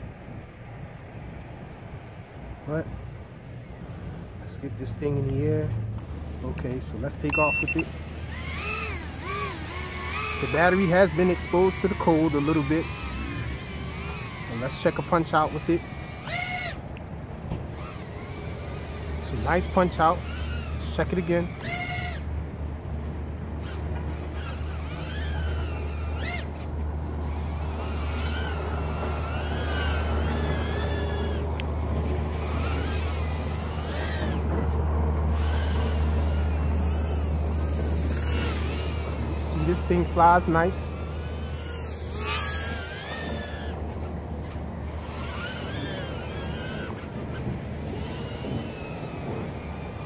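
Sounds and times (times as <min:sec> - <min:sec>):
quadcopter motors whining: 0:02.7 - 0:22.6, 0:23.4 - 0:50.0.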